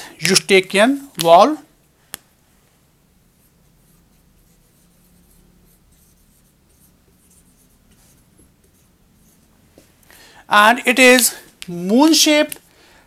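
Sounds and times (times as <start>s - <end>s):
low steady hum: 0.0s - 11.8s
marker writing on whiteboard: 3.3s - 9.9s.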